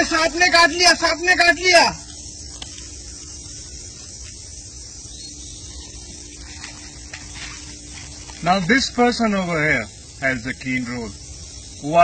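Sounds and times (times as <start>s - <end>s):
even hiss: 0.0s - 12.0s
faint steady hum: 0.0s - 12.0s
faint ticks: 2.0s - 4.6s.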